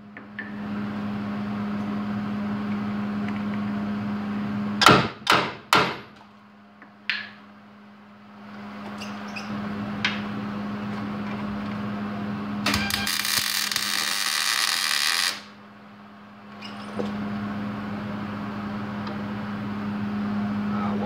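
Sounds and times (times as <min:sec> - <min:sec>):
steady low hum: 0:00.0 - 0:21.0
welder arc crackling: 0:12.6 - 0:15.6.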